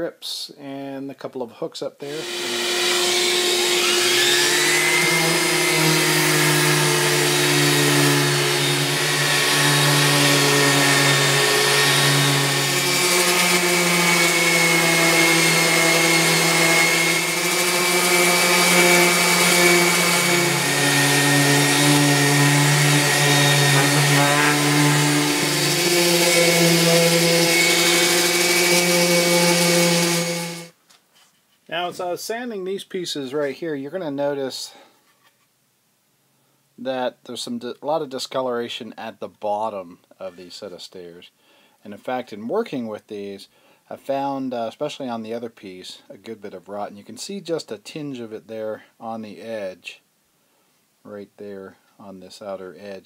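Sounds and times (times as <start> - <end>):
orbital sander sanding wood: 2.1 - 30.8.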